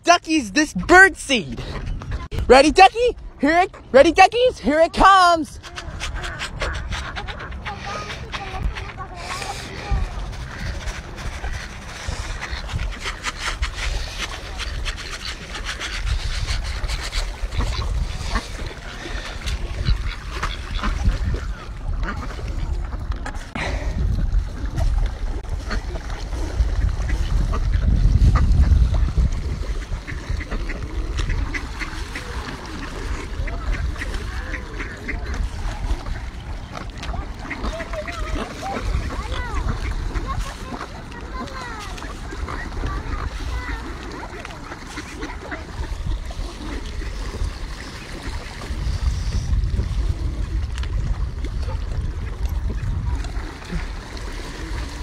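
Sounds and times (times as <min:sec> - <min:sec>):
wind buffeting microphone: 0:01.4 - 0:04.5, 0:05.2 - 0:55.0
duck quacks: 0:05.0 - 0:22.7, 0:29.6 - 0:36.2, 0:37.0 - 0:46.8
ducks splashing in water: 0:05.6 - 0:55.0.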